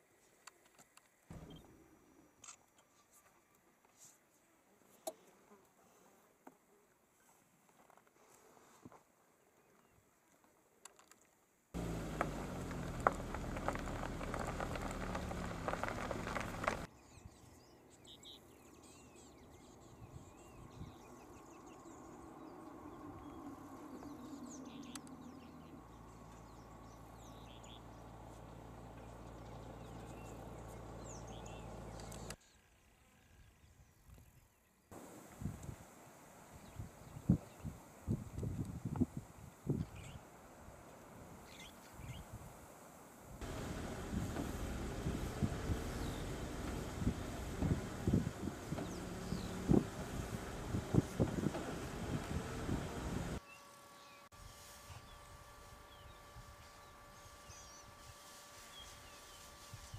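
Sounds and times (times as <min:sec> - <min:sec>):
birds chirping: 0:01.3 - 0:01.8, 0:11.8 - 0:35.3, 0:43.4 - 0:54.3
dense low rumbling noise: 0:11.8 - 0:16.9, 0:43.4 - 0:53.4.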